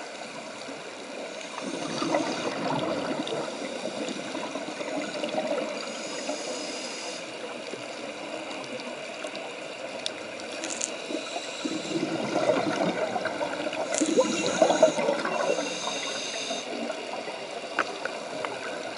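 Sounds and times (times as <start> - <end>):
exhaled bubbles gurgling: 1.2 - 6.4, 11.0 - 18.9
regulator hissing on inhalation: 5.8 - 7.4, 10.9 - 12.6, 13.9 - 16.9.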